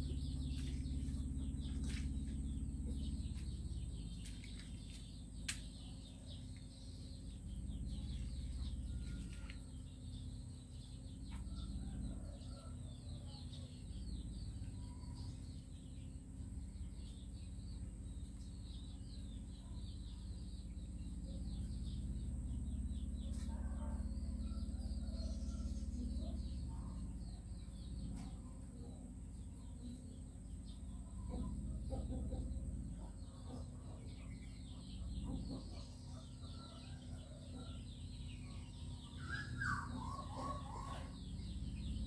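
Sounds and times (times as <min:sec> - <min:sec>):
low rumble: 0:00.0 - 0:12.5
birds chirping: 0:00.0 - 0:42.0.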